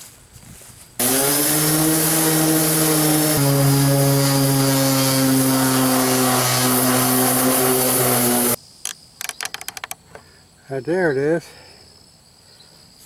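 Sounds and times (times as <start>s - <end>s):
orbit sander sanding metal: 1.0s - 8.6s.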